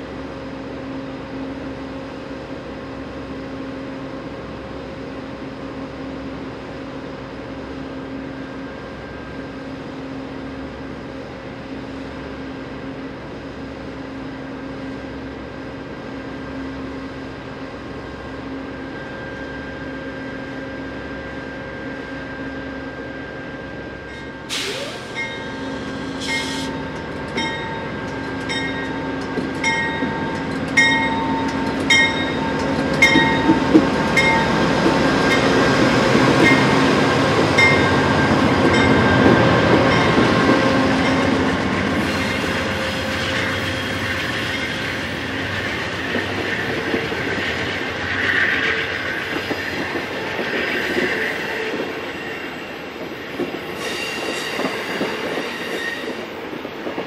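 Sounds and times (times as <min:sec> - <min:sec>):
diesel locomotive engine hum: 0:00.0 - 0:57.0
train wheels on rails: 0:00.0 - 0:57.0
train wheels squealing: 0:18.6 - 0:35.7, 0:37.6 - 0:57.0.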